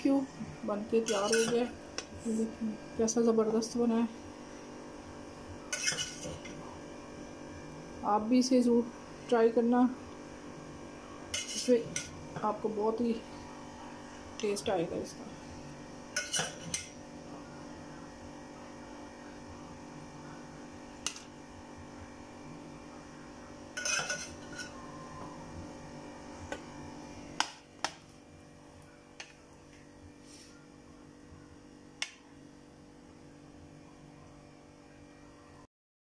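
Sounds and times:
steady low hum: 0.0s - 35.7s
spoon clinking on pot and plate: 16.2s - 16.9s, 23.8s - 24.7s.

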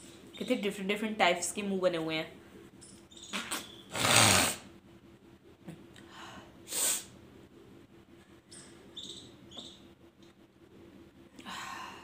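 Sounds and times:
woman's sharp breath bursts: 6.1s - 7.2s
woman sniffing: 6.7s - 7.2s.

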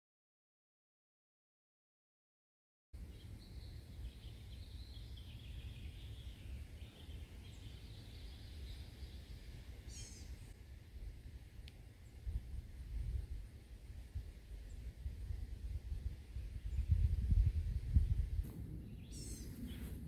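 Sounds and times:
bird trill: 3.0s - 10.5s, 18.7s - 20.0s
small birds chirping: 3.0s - 10.6s, 11.6s - 20.0s
wind rumble on microphone: 3.1s - 20.0s.

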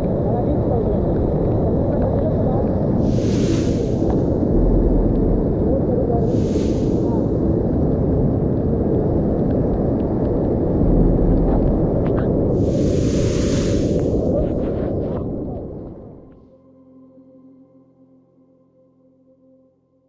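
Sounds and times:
flood torrent rushing over rocks: 0.0s - 7.5s, 8.1s - 15.1s.

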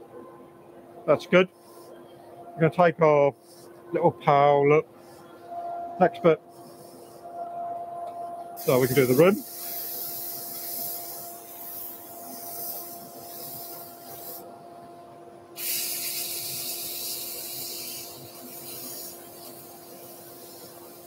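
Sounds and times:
sandpaper sanding spinning wood: 8.6s - 14.4s, 15.6s - 21.0s.

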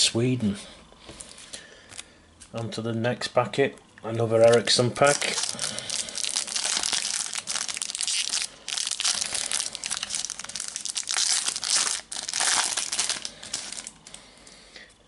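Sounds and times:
foil packet torn and crinkled: 4.4s - 14.2s.

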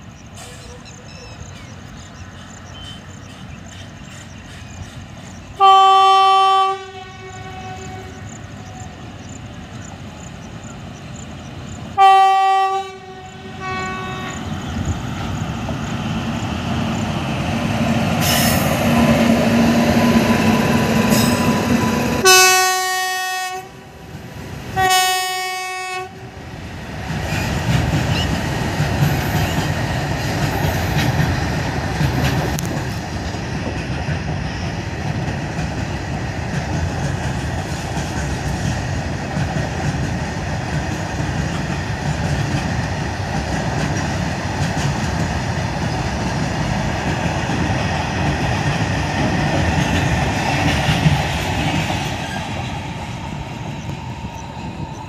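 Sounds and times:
train wheels rumbling on rails: 0.0s - 55.0s
train horn blast: 5.6s - 9.0s, 12.0s - 14.6s, 22.2s - 24.0s, 24.8s - 26.4s.

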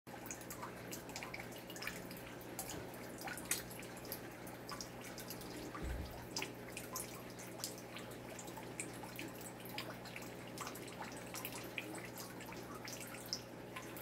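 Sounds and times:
aquarium pump hum: 0.1s - 14.0s
water dripping into aquarium: 0.1s - 14.0s
soft low thud: 5.8s - 6.2s.

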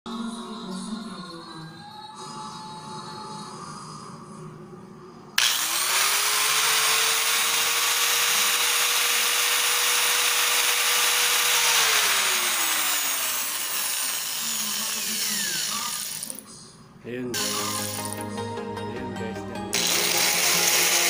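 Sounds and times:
electric hand grinder whining: 5.4s - 16.4s, 17.4s - 18.2s, 19.7s - 21.0s
grinder motor hiss: 5.4s - 16.4s, 17.4s - 18.2s, 19.7s - 21.0s.

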